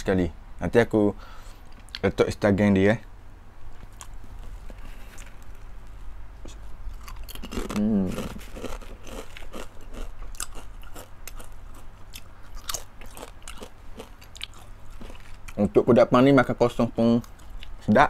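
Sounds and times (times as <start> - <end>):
crunchy chips being chewed: 6.9 - 15.6
person humming: 7.6 - 8.5.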